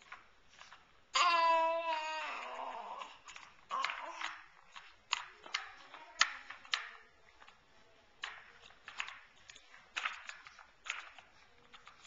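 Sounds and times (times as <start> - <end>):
plastic toy car clacking: 3.2 - 7.6, 8.2 - 12.0.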